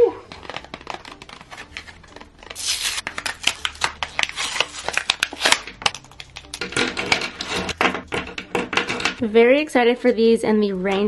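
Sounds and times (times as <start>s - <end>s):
crinkling plastic and ripping card: 0.2s - 7.8s
plastic blister pack tearing open: 0.3s - 7.7s.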